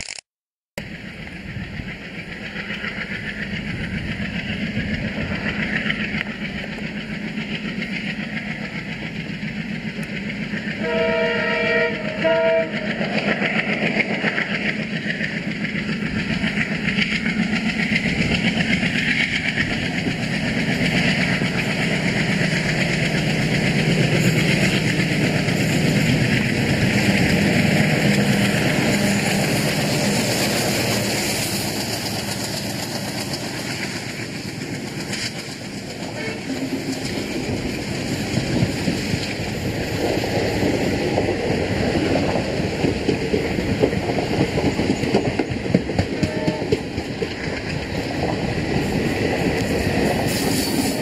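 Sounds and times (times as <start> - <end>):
diesel locomotive engine: 0.8 - 51.0
train wheels on rails: 0.8 - 51.0
locomotive horn blasts: 10.8 - 12.9, 36.2 - 36.5, 46.2 - 46.8.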